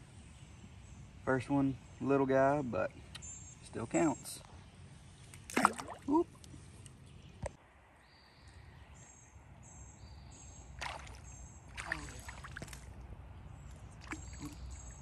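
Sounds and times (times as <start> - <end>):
fish splashing at water surface: 5.5 - 6.2, 10.8 - 12.9.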